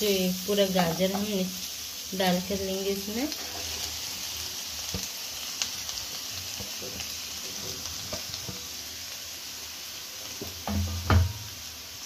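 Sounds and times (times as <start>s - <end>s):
carrots sizzling in hot fat: 0.0s - 12.0s
spatula scraping and tapping pan: 6.6s - 8.7s.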